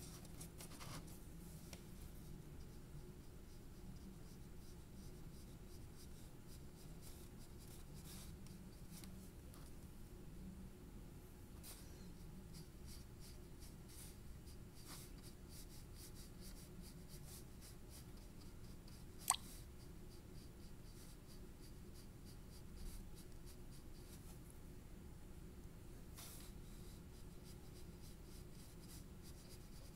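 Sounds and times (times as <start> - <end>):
pencil scratching on paper: 26.2 - 29.9.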